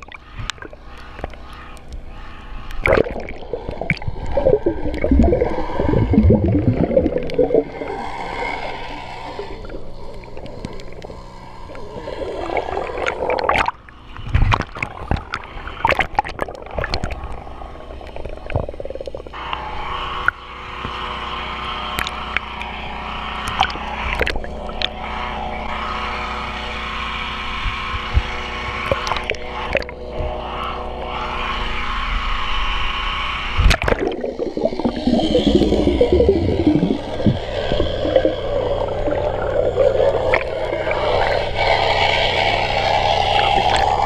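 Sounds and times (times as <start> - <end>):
sharp clicks and knocks underwater: 0.0 - 7.8, 9.7 - 11.8, 12.5 - 19.6, 22.0 - 22.7, 23.4 - 25.0, 27.6 - 30.3, 33.6 - 41.7, 43.2 - 44.0
steady hum: 0.0 - 44.0
underwater water noise: 0.0 - 44.0.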